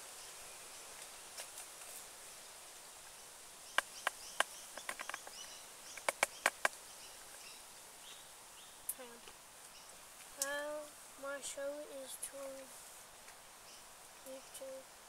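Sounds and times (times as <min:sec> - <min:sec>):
sharp short snaps: 0:03.7 - 0:06.8.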